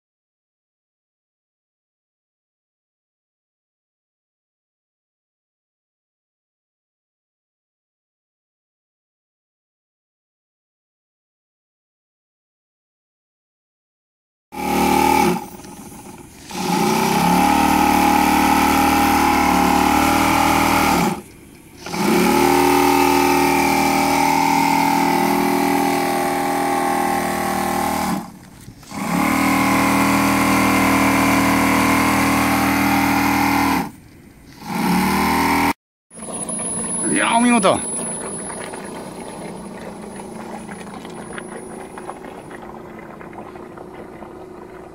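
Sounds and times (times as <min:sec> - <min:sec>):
model steam engine running fast: 0:14.6 - 0:28.3, 0:28.9 - 0:33.9, 0:36.2 - 0:44.9.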